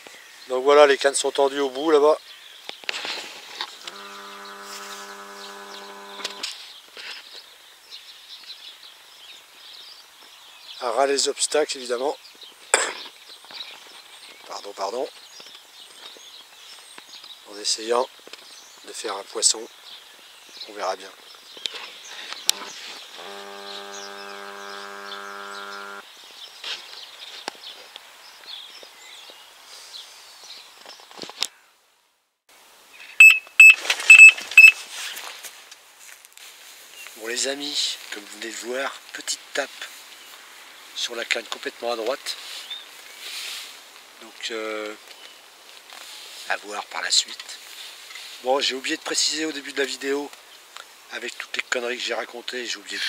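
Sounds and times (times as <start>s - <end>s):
birds chirping: 0.0s - 31.2s, 33.0s - 35.4s
bite alarm steady tone: 3.8s - 6.4s, 22.5s - 26.0s, 33.2s - 34.8s
zoom motor humming: 3.8s - 6.4s, 22.5s - 26.0s
zoom motor click: 3.8s - 6.5s
faint bird chirps: 33.0s - 34.8s.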